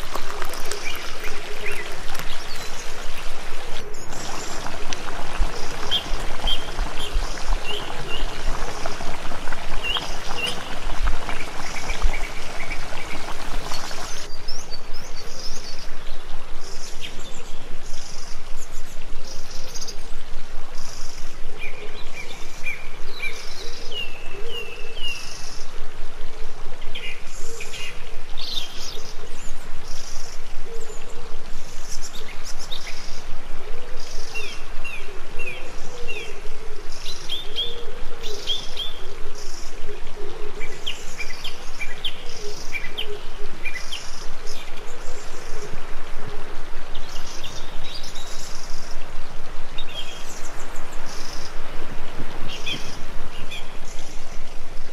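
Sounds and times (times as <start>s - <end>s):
liquid pouring into a pot: 0.0s - 14.3s
small birds chirping: 0.0s - 16.1s.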